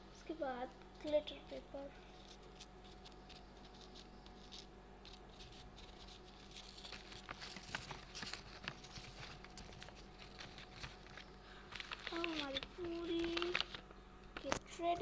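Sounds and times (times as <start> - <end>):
plastic pouch crinkling and crackling: 5.4 - 14.6.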